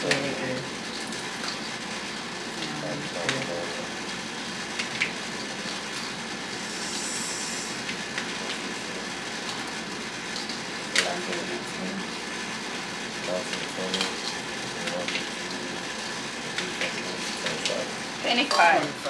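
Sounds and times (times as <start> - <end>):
steady hiss: 6.4 - 9.1.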